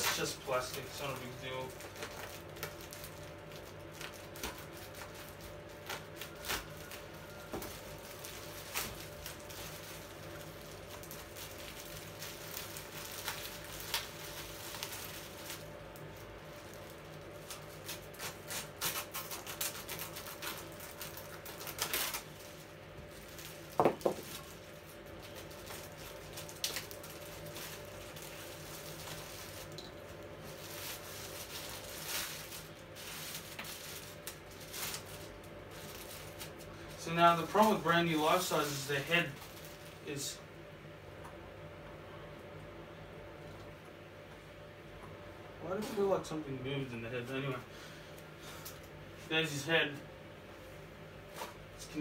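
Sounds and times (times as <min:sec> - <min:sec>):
plastic wrap crinkling: 0:00.0 - 0:40.4
faint steady hum: 0:00.0 - 0:52.0.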